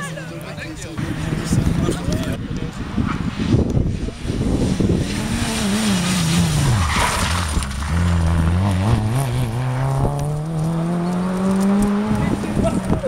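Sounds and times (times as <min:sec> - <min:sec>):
rally car engine accelerating: 0:03.2 - 0:13.0
tyres scrabbling on dusty road: 0:04.4 - 0:13.0.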